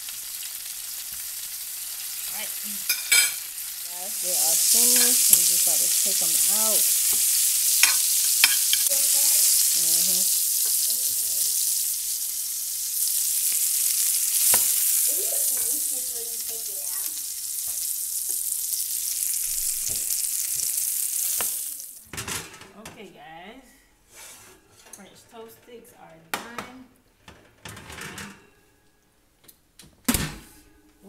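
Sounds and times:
sausage sizzling in frying pan: 0.0s - 22.1s.

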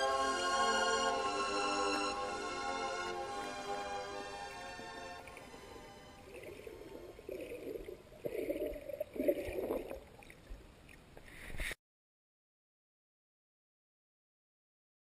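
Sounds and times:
underwater water sloshing: 4.4s - 11.7s.

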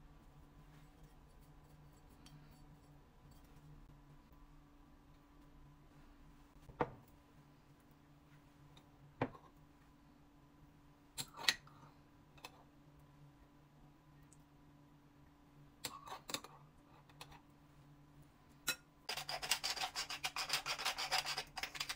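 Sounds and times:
faint hum: 0.0s - 21.9s.

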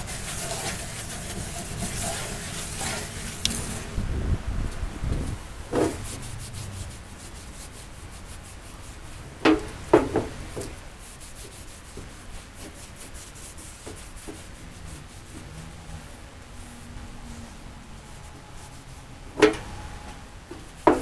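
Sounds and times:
rag rubbing on wood: 0.0s - 3.9s, 5.7s - 15.8s.

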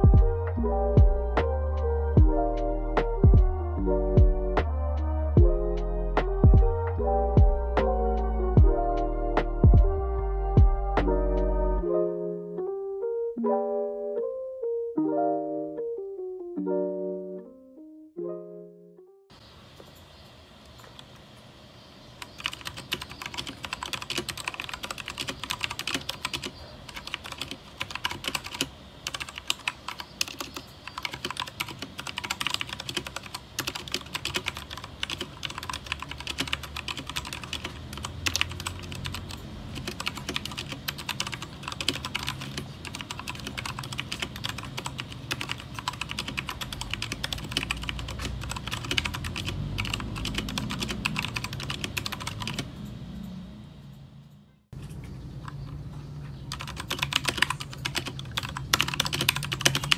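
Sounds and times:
fast mechanical keyboard typing: 22.2s - 52.7s, 56.5s - 59.9s.

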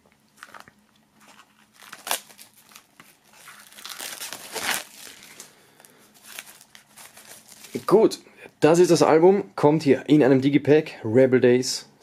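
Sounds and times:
plastic film crinkling: 0.3s - 8.0s.

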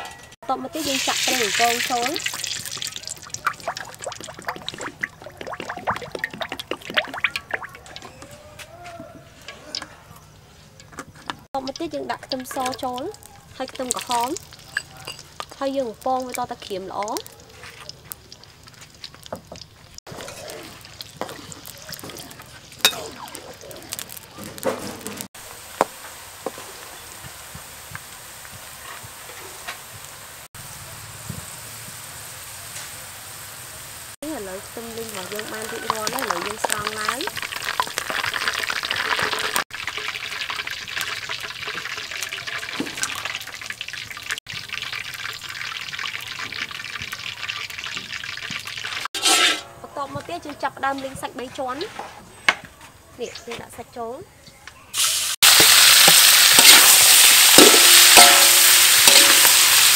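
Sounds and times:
garlic frying in oil: 0.5s - 8.2s, 9.7s - 49.4s, 54.9s - 59.9s
wire strainer scooping: 49.2s - 49.7s, 55.8s - 59.9s
metal ladle clicking against pan: 57.6s - 58.5s.

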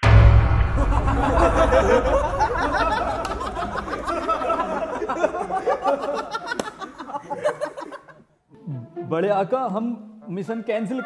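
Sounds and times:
young men laughing: 0.8s - 8.3s.

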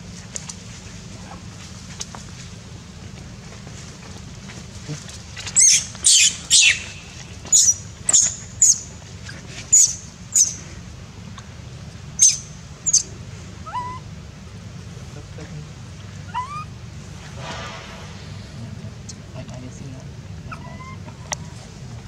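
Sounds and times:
baby monkey screaming: 5.4s - 8.9s, 9.7s - 10.6s, 12.2s - 14.1s, 16.2s - 16.8s, 20.5s - 21.4s.

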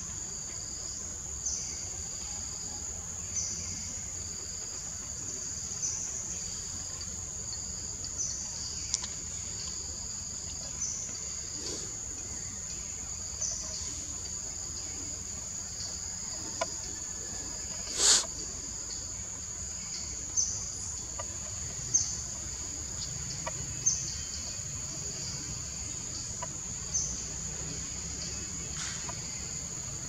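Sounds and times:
insects droning in trees: 0.0s - 30.0s
short sharp chirps: 17.9s - 18.3s.

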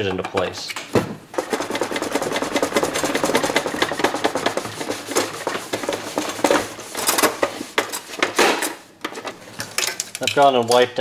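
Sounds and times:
rag rubbing sheet metal: 1.4s - 8.3s.

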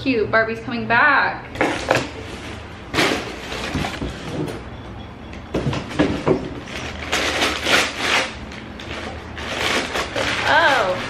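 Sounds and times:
cardboard and packing rustling: 1.6s - 4.8s, 5.4s - 11.0s.

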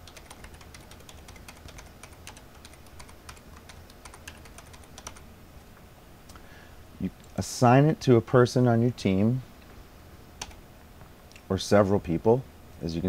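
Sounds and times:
computer keyboard typing: 0.0s - 5.2s, 10.4s - 10.6s.

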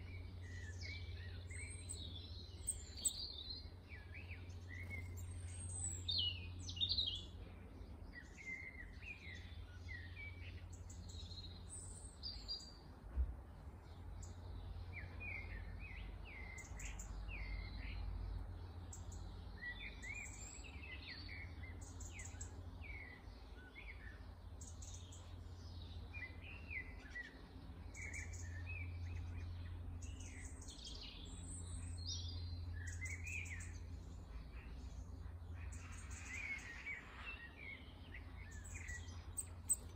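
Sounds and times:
songbirds chirping: 0.0s - 39.9s.

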